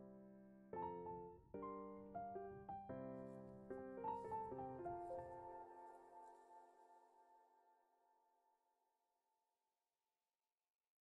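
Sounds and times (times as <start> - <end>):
gentle piano music: 0.0 - 8.1.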